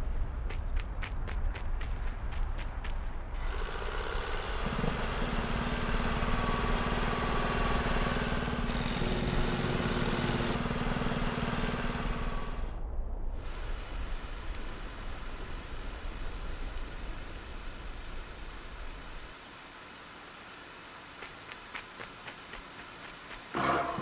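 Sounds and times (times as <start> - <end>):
engine drone: 2.6 - 24.0
deeper second engine: 3.2 - 24.0
hiss: 8.6 - 10.6, 13.4 - 23.6.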